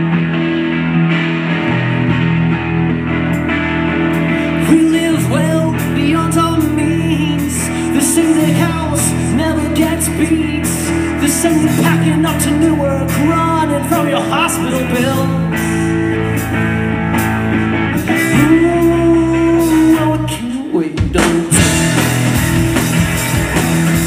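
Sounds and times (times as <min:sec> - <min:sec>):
rock band playing: 0:00.0 - 0:24.0
man singing: 0:04.4 - 0:15.9, 0:18.1 - 0:22.1.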